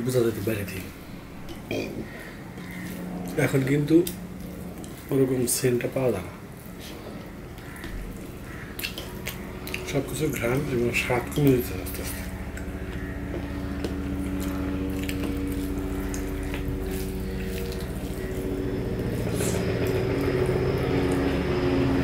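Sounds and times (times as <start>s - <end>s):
motor humming: 0.3s - 22.0s
hand mixing food on steel plate: 0.8s - 21.9s
chewing: 4.0s - 5.1s, 6.7s - 10.0s, 11.3s - 21.5s.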